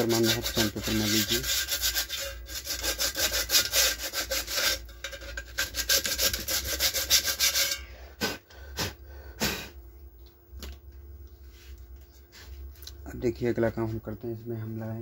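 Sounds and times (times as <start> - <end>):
sandpaper rubbing on plastic: 0.0 - 4.8, 5.6 - 7.7.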